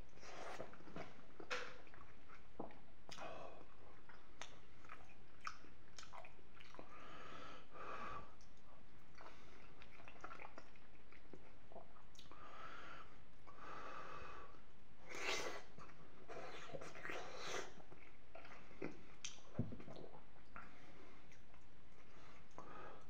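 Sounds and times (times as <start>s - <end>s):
man chewing pasta: 0.2s - 7.0s, 8.4s - 12.4s, 15.1s - 22.8s.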